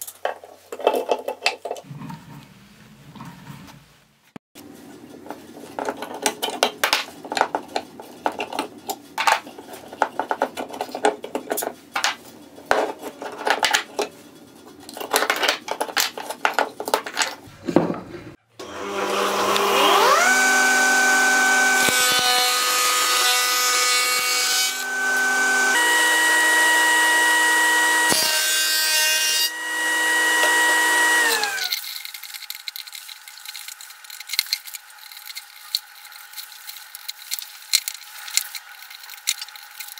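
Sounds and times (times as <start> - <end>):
saw blade cutting wood: 18.6 - 31.8
table saw whining: 18.6 - 31.8.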